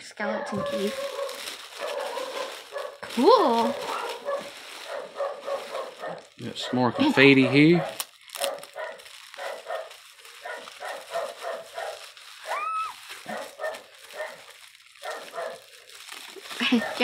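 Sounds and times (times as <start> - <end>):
dog high cry: 0.2 - 3.0, 3.6 - 15.7
dogs barking in another room: 0.3 - 3.0, 3.7 - 12.1, 13.2 - 15.7.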